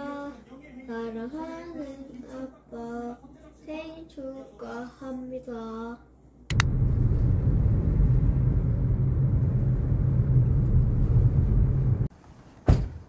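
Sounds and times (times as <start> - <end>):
sharp click: 6.5 - 6.7
road rumble inside car: 6.5 - 12.1.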